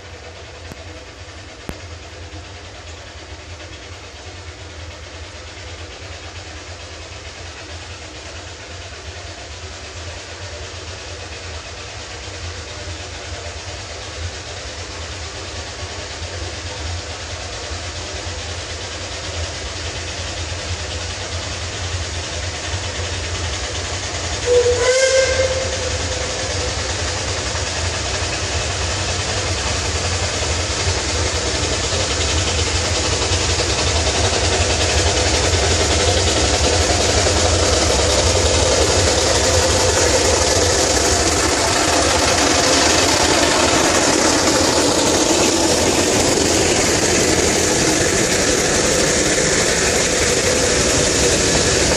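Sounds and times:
hiss of steam: 0.0 - 51.9
steam locomotive approaching: 0.0 - 51.9
steam whistle blast: 24.4 - 26.6.

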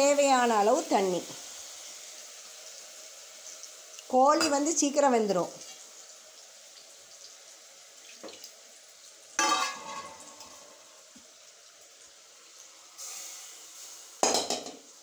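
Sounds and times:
soft hiss: 0.0 - 15.0
metal cookware clanking: 9.4 - 10.8, 14.2 - 14.8.

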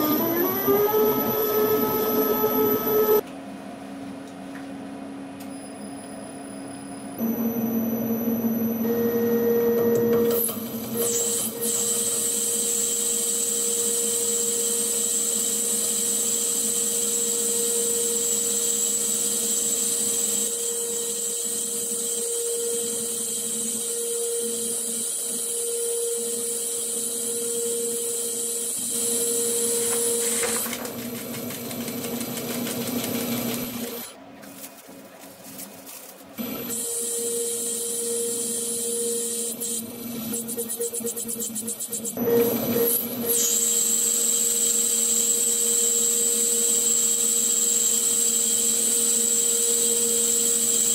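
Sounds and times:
high cutting whine: 0.0 - 3.2.

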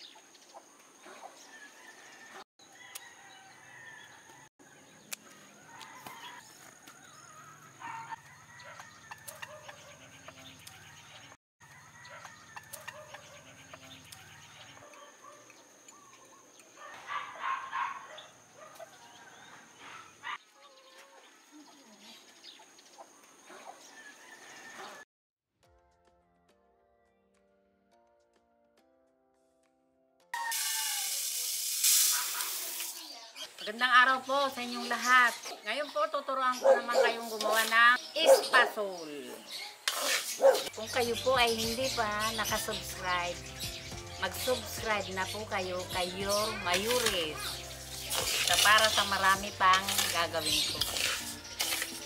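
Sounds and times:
birds calling: 0.0 - 25.0, 33.0 - 52.0
rooster crowing: 1.5 - 9.6, 11.6 - 13.2, 23.8 - 25.0, 30.4 - 31.3.

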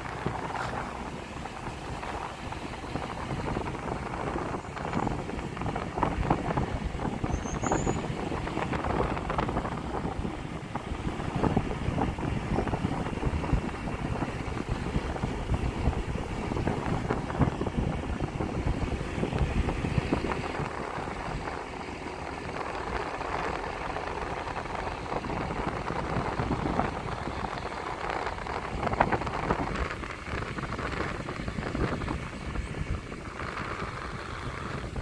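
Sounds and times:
moving vehicle rumble: 0.0 - 35.0
wind buffeting microphone: 0.0 - 35.0.

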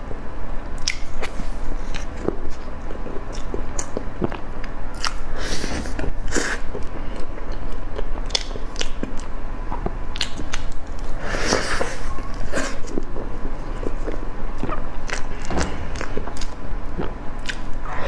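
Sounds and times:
wet mouth clicks and smacks: 0.8 - 1.1, 8.3 - 9.3
person chewing soft food: 0.8 - 18.0.

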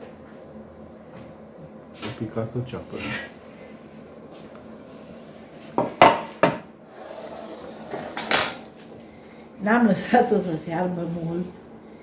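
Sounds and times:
utensils clattering against pot: 7.9 - 8.7.

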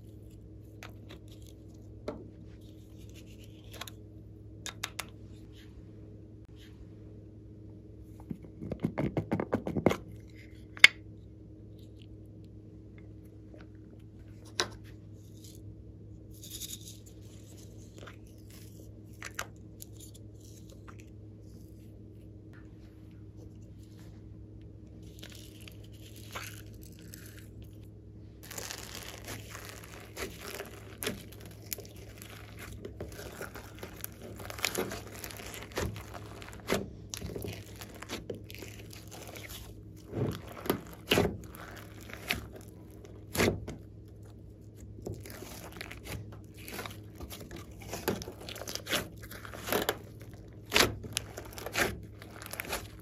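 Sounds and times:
slime crackling and crunching: 25.0 - 53.0.

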